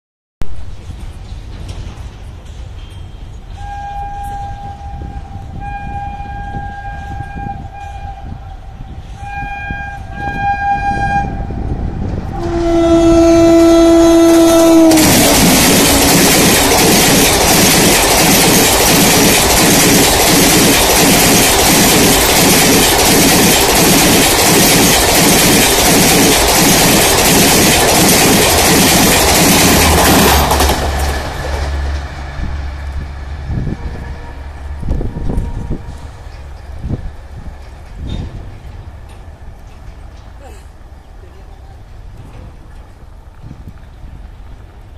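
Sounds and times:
clickety-clack over rail joints: 0:00.4 - 0:04.9, 0:10.1 - 0:44.9
train wheel noise: 0:00.4 - 0:44.9
locomotive horn blasts: 0:03.5 - 0:11.7, 0:12.3 - 0:15.3, 0:33.5 - 0:36.3.

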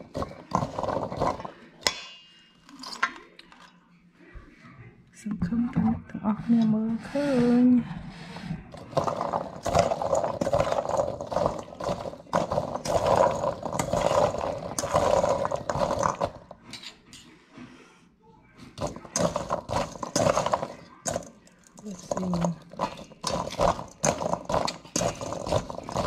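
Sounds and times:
fruit clattering in a metal bowl: 0:00.0 - 0:03.7, 0:08.7 - 0:17.2, 0:18.8 - 0:26.0.

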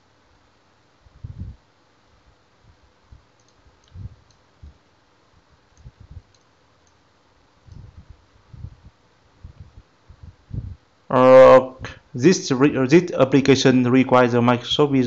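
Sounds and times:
low steady hiss: 0:00.0 - 0:15.0
computer mouse clicks: 0:03.4 - 0:04.4, 0:05.7 - 0:07.0.

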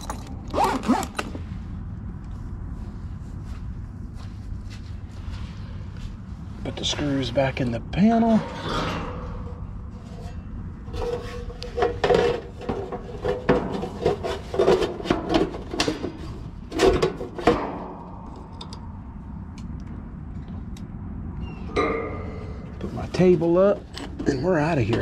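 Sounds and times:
metal panel scraping and clanking: 0:08.2 - 0:18.7, 0:21.6 - 0:25.0.

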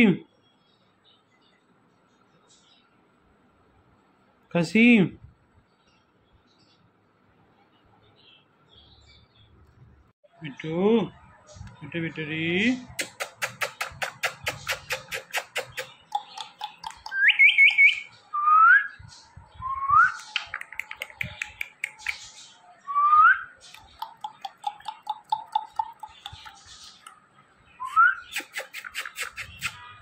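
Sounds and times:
kissing smacks: 0:12.9 - 0:17.2, 0:28.3 - 0:29.8.

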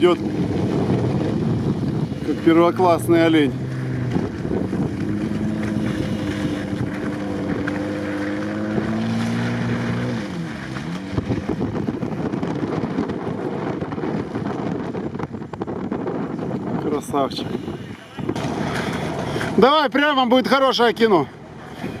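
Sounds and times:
car engine at high revs: 0:00.0 - 0:16.4, 0:17.7 - 0:19.9
wind buffeting microphone: 0:00.0 - 0:22.0.

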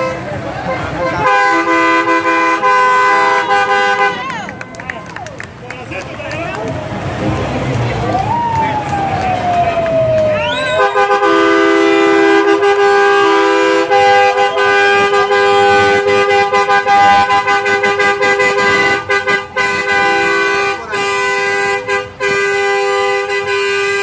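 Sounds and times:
truck air horns chord: 0:00.0 - 0:04.6, 0:10.5 - 0:24.0.

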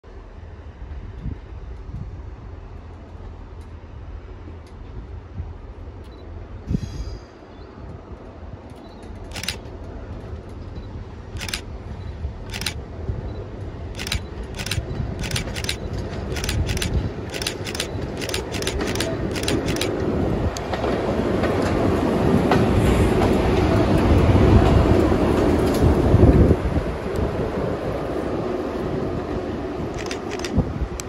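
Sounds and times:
electric locomotive passing: 0:08.2 - 0:31.0
wheels clicking over points: 0:14.0 - 0:20.0.

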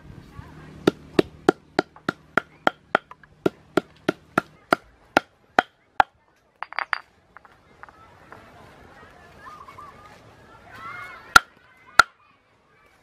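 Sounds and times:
stone pounding on wooden board: 0:00.8 - 0:07.1.

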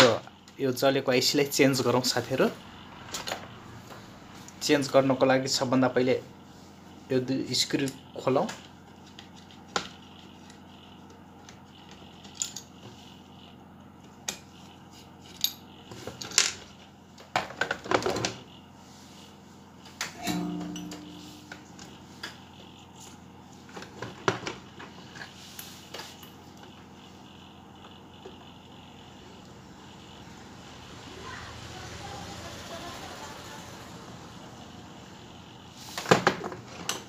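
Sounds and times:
metal clink ringing: 0:20.2 - 0:21.4.

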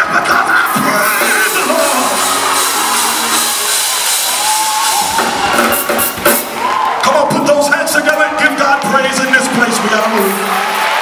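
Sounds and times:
drums and cymbals striking: 0:00.0 - 0:08.2
live gospel band music: 0:00.0 - 0:11.0.

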